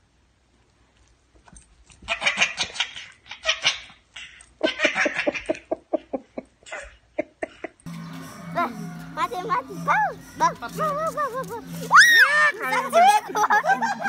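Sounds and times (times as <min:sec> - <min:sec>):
baby laughing: 0:12.5 - 0:14.0.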